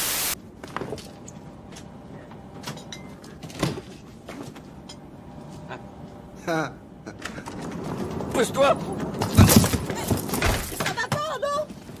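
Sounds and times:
loud static hiss: 0.0s - 0.4s
airliner cabin background: 0.4s - 12.0s.

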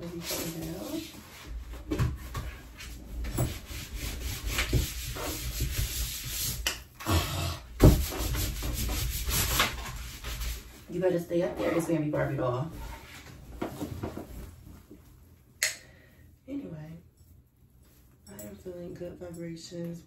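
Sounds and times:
canvas scraping on wooden door: 0.0s - 6.6s, 7.8s - 14.4s
knocks on wooden door: 7.8s - 8.1s.

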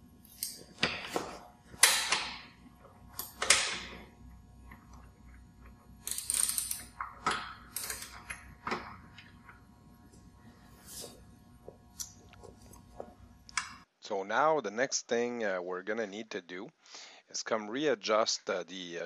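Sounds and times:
tools clicking and rattling: 3.1s - 4.1s, 4.7s - 9.6s.

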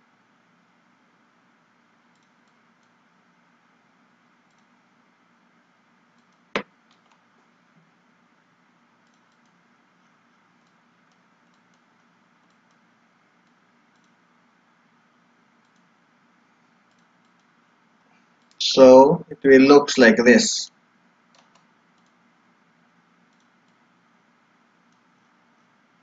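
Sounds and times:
low steady background hiss: 0.0s - 26.0s
computer mouse clicking: 2.1s - 3.0s, 4.5s - 4.7s, 6.1s - 7.2s, 9.0s - 9.6s, 10.6s - 14.3s, 15.6s - 15.9s, 16.8s - 17.6s, 21.3s - 22.2s, 23.3s - 23.8s, 24.9s - 25.1s.

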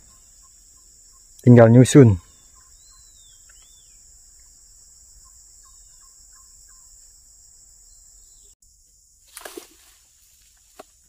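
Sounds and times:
faint whistled calls: 0.0s - 7.0s
high-pitched insect chorus: 0.0s - 11.0s.

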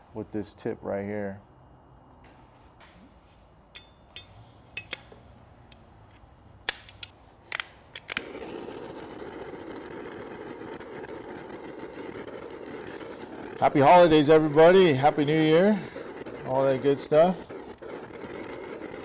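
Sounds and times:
torch flame hissing: 8.1s - 19.0s.

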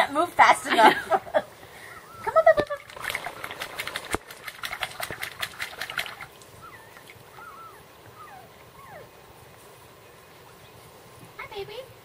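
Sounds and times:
water splashing: 2.3s - 7.3s
puppy whimpering: 6.6s - 9.1s.

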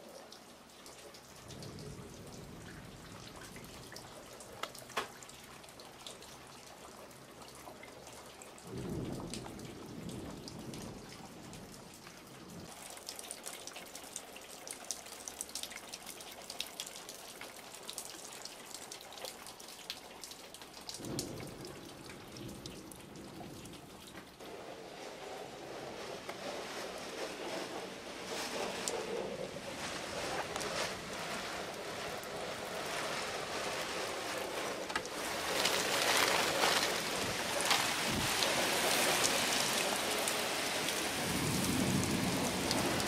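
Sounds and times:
water dripping: 0.0s - 24.4s, 34.9s - 43.0s.

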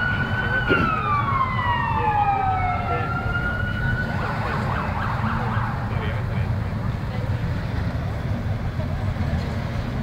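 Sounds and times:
emergency siren wailing: 0.0s - 6.5s.

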